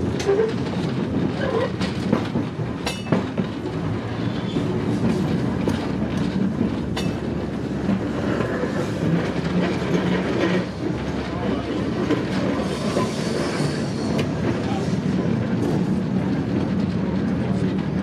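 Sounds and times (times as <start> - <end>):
tram wheels rumbling on rail: 0.0 - 18.0
sharp rail clacks: 0.1 - 3.8, 4.6 - 11.4.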